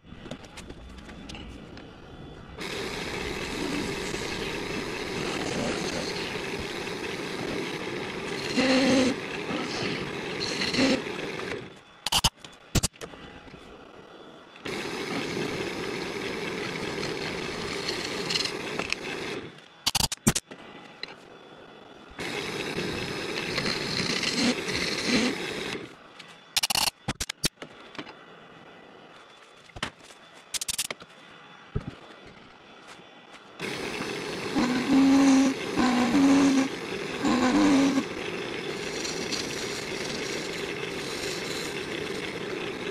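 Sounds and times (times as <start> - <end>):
hollowing tool scraping on lathe: 2.6 - 11.6, 16.7 - 19.4, 22.2 - 25.8, 33.6 - 42.9
sharp clicks: 19.8 - 20.5, 26.6 - 27.6.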